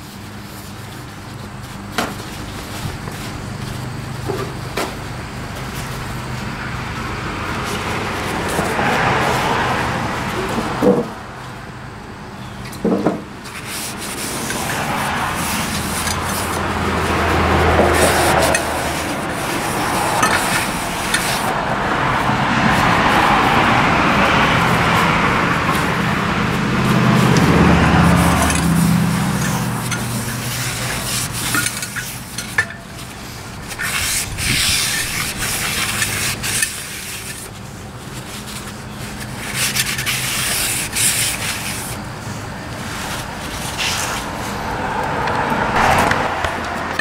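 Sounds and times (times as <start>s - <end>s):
rags rubbing: 0.0s - 4.0s, 13.4s - 44.7s.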